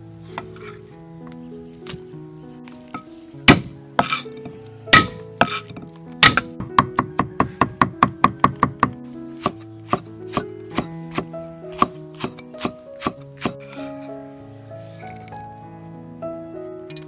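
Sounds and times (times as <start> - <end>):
background music: 0.0 - 17.0
cleaver chopping wooden block: 3.5 - 4.3, 4.9 - 13.8.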